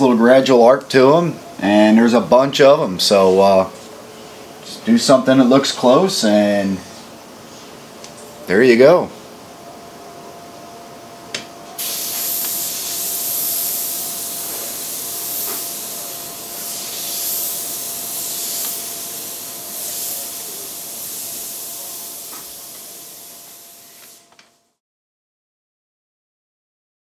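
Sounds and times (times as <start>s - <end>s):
airbrush spraying hiss: 11.7s - 24.4s
airbrush trigger click: 18.4s - 18.8s.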